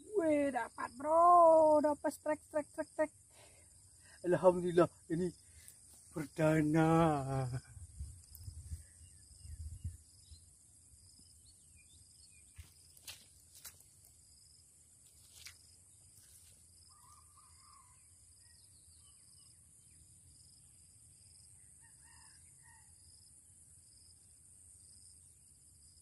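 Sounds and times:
high insect drone: 0.0 - 26.0
distant rooster crowing: 16.9 - 18.2, 21.8 - 23.0.

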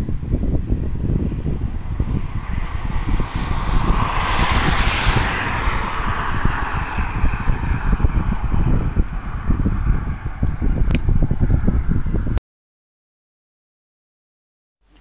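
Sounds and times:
wind buffeting microphone: 0.0 - 12.4
car passing: 0.4 - 11.9.

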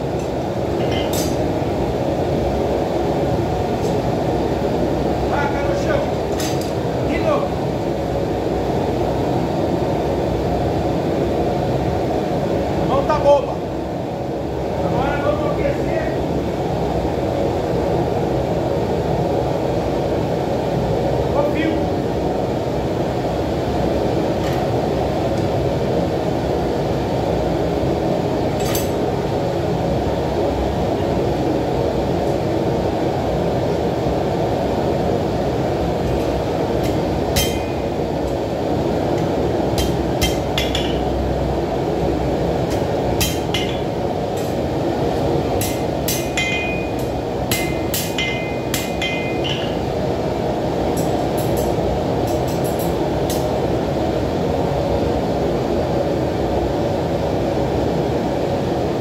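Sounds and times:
forge burner roaring: 0.0 - 59.0
hammer blows on hot steel: 36.8 - 38.0, 45.6 - 49.8.

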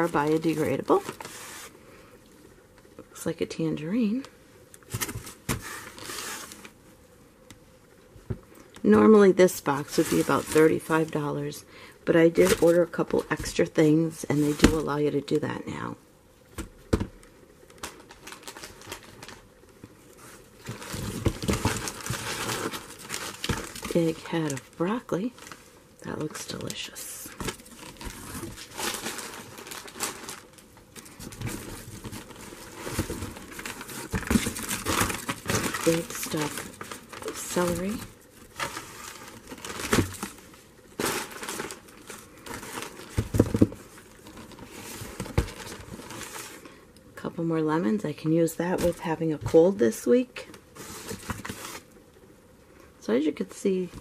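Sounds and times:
packaging rustling and crinkling: 0.0 - 1.8, 4.8 - 6.8, 9.6 - 11.2, 16.6 - 46.8, 50.4 - 52.0.

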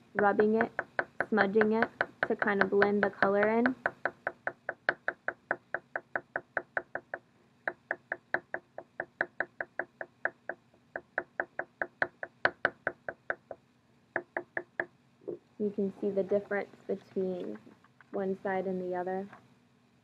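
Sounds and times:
pastel stick tapping on paper: 0.2 - 13.6.

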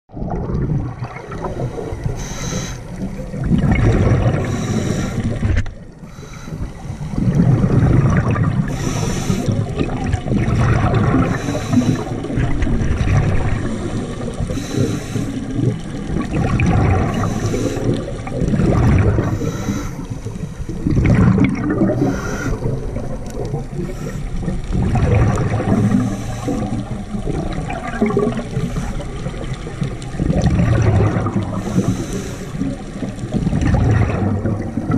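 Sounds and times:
exhaled air bubbling: 0.1 - 34.9
regulator inhale hiss: 1.5 - 3.0, 4.4 - 7.3, 8.7 - 9.7, 11.2 - 12.3, 14.5 - 15.6, 17.1 - 18.2, 19.2 - 20.4, 21.9 - 22.8, 23.8 - 24.6, 25.7 - 27.0, 28.6 - 29.3, 31.6 - 33.0.

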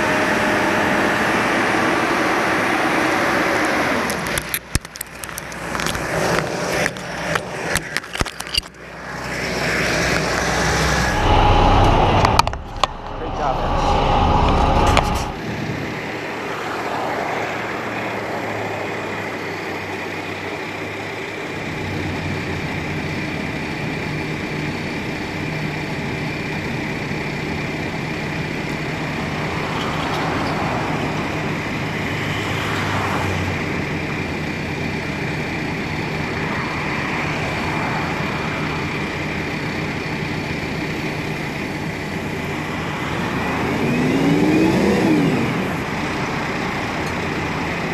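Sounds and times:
truck engine running: 0.0 - 16.9, 17.6 - 47.9
high whine: 0.0 - 17.0.

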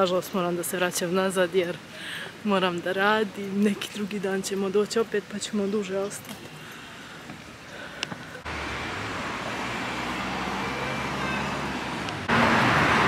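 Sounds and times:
passing vehicles: 8.0 - 13.0
low engine hum: 8.4 - 13.0.

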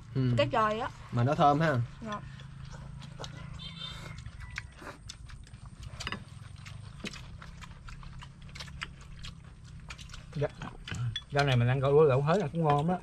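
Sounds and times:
utensils clicking against bowls: 8.8 - 13.0.

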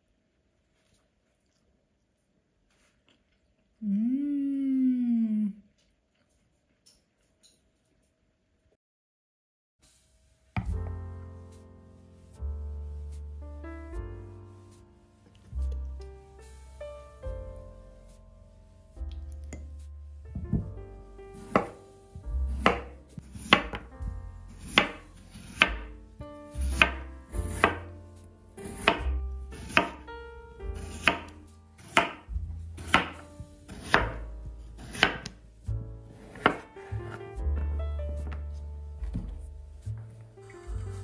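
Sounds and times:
soft background music: 10.3 - 41.0
knife cutting on cutting board: 21.4 - 21.9, 22.5 - 23.9, 24.5 - 25.9, 26.6 - 28.0, 28.6 - 30.1, 30.8 - 34.2, 34.8 - 35.4, 36.1 - 37.2.

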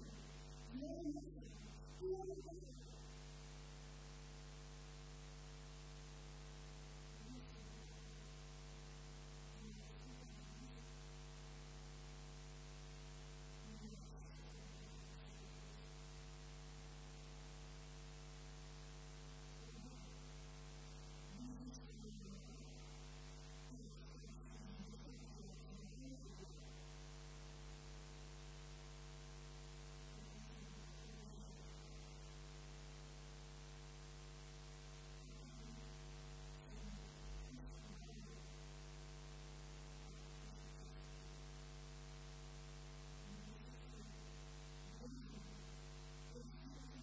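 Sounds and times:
woman's voice: 0.0 - 3.0, 7.2 - 8.2, 9.5 - 10.9, 13.6 - 15.7, 19.6 - 20.2, 21.3 - 23.0, 23.7 - 26.7, 30.1 - 32.0, 35.2 - 35.8, 36.6 - 38.6, 43.2 - 45.6, 46.3 - 47.0
electrical mains hum: 0.0 - 47.0.

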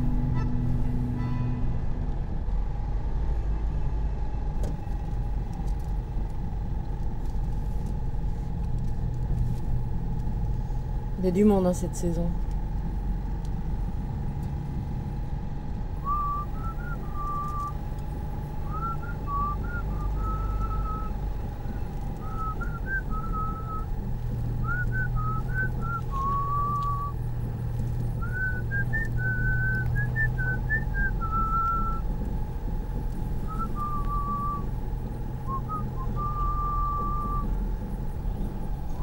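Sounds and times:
low rumble of a car: 0.0 - 39.0
person whistling a tune: 16.0 - 17.8, 18.6 - 21.1, 22.2 - 23.9, 24.6 - 27.2, 28.2 - 32.0, 33.4 - 34.7, 35.5 - 37.5.

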